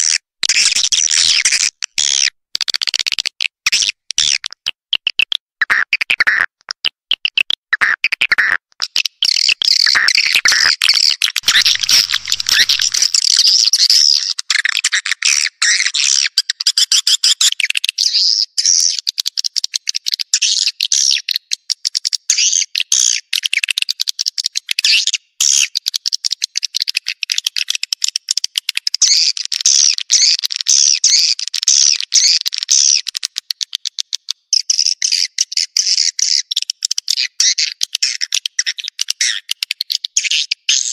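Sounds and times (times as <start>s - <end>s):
swiftlets chirping and twittering: 11.4s - 13.2s.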